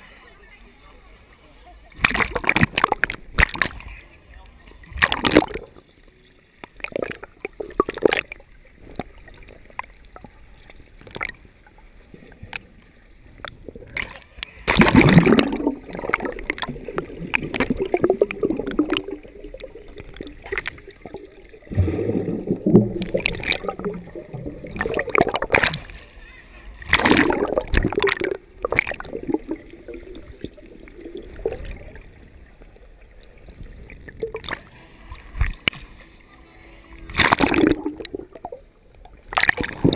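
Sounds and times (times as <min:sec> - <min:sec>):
churning water rushes: 0:00.0 - 0:05.8, 0:13.4 - 0:32.6, 0:33.2 - 0:38.6
muffled underwater sloshing: 0:00.0 - 0:39.9.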